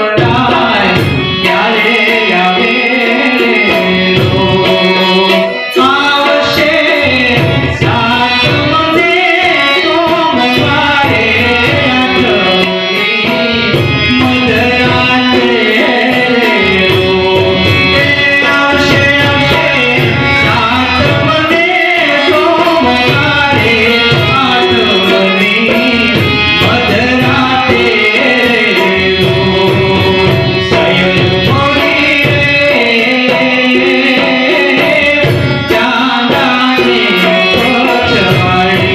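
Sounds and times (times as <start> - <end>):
harmonium: 0.0 - 38.9
man singing folk song: 0.0 - 38.9
tabla rhythm: 0.0 - 38.9.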